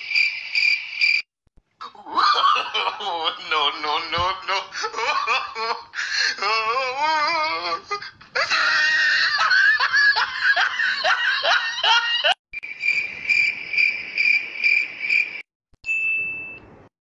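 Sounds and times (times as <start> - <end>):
laugh sound effect: 1.8 - 6.8, 7.4 - 12.4.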